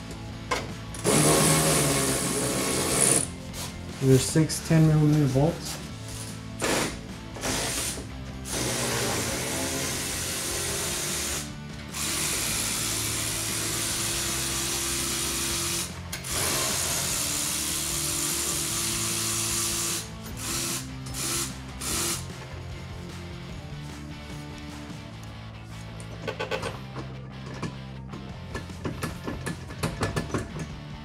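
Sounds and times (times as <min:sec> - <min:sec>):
cordless electric ratchet running: 0:06.6 - 0:22.3.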